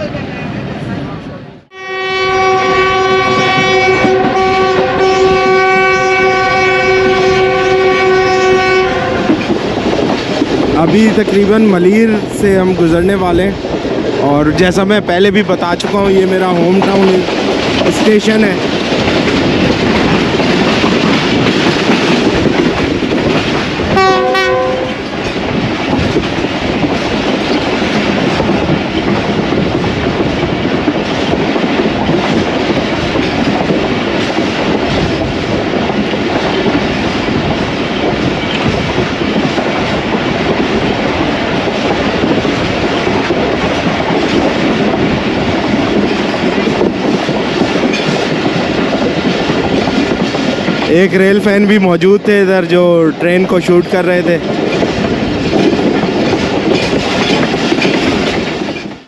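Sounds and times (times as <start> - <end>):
train horn: 1.7 - 9.4, 24.0 - 25.0
train wheels clickety-clack: 2.5 - 59.0.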